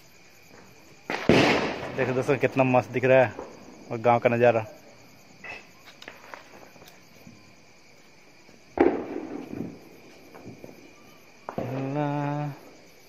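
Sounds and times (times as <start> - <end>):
faint firecracker pops: 0.5 - 2.2, 8.7 - 12.0
firecracker loud bang: 1.1 - 3.6, 8.7 - 10.9.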